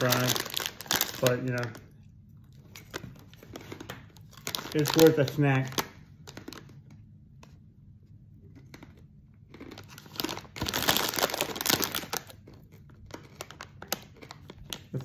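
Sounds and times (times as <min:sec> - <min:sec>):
plastic snack bag crinkling: 0:00.0 - 0:07.2, 0:08.4 - 0:15.0.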